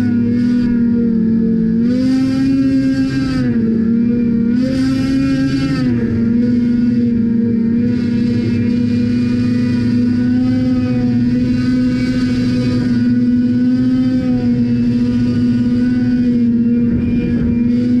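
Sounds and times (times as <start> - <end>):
watercraft engine drone: 0.0 - 18.0
wind noise: 14.2 - 18.0.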